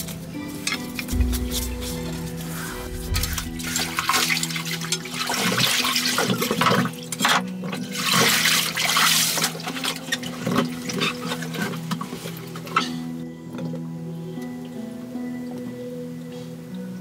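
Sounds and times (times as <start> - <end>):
water rushing and splashing: 0.0 - 12.5
background music: 0.0 - 17.0.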